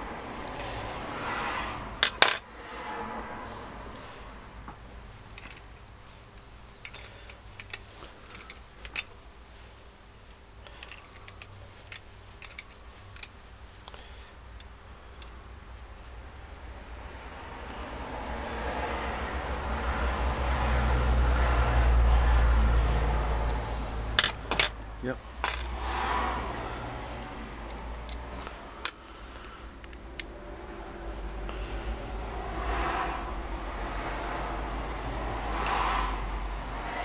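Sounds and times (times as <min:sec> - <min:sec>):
metallic clicks of tool and bolts: 0:05.4 - 0:09.2, 0:10.3 - 0:13.7, 0:23.4 - 0:24.8, 0:25.4 - 0:25.8, 0:27.6 - 0:29.1.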